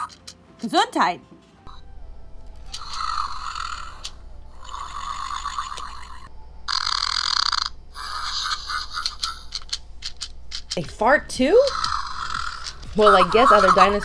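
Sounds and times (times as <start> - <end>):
electronic toy creature noises: 2.7 - 10.2, 11.6 - 14.0
toy fart sound: 4.7 - 6.2.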